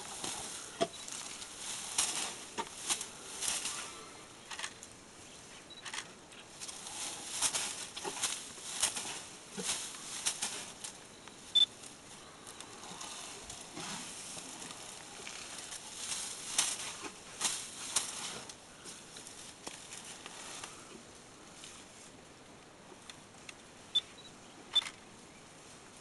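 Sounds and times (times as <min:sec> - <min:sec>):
elephant tearing vegetation: 0:00.0 - 0:04.8, 0:05.8 - 0:11.0, 0:12.6 - 0:18.6.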